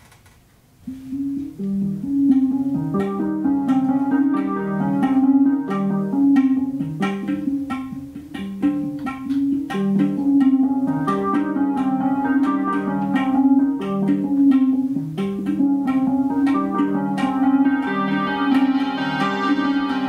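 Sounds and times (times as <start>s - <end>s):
oud and synthesizer music: 0.9s - 20.0s.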